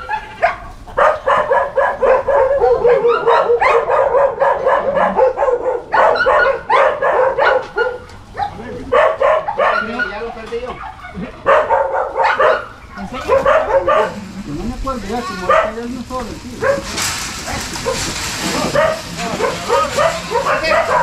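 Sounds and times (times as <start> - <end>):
dog barking excitedly: 0.0 - 21.0.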